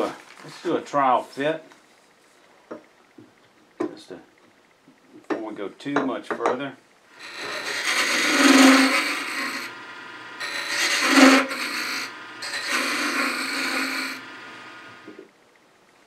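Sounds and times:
lathe humming: 7.1s - 15.1s
tool scraping spinning wood: 7.2s - 15.0s.

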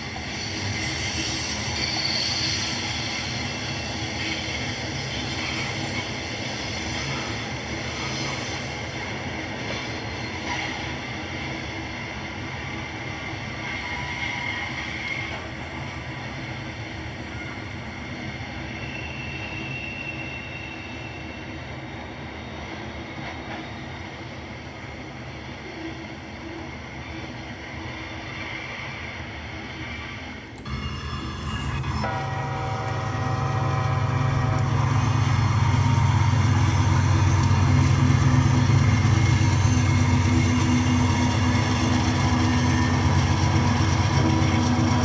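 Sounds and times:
train wheels rumbling on rails: 0.0s - 45.0s
high wheel squeals: 18.6s - 21.7s.

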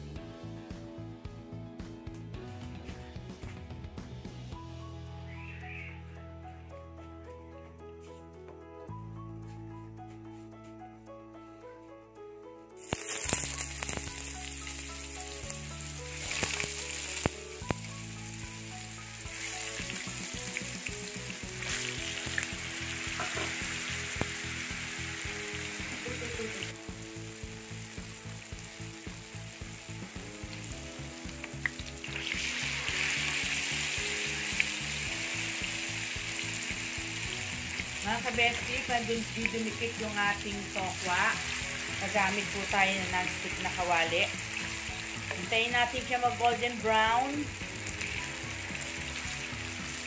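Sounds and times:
tofu sizzling in hot oil: 12.8s - 50.0s.

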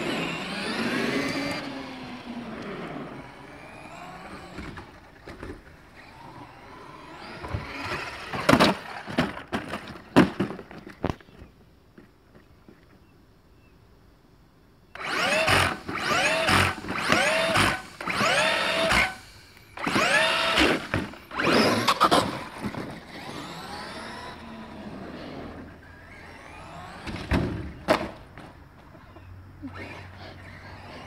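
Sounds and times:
electric motor whining: 0.0s - 8.9s, 14.9s - 27.8s, 29.6s - 31.0s.

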